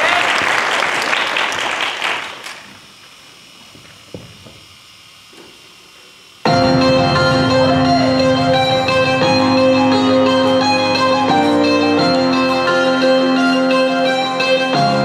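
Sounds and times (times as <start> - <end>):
audience applause: 0.0 - 2.8
music with held notes: 6.5 - 15.0.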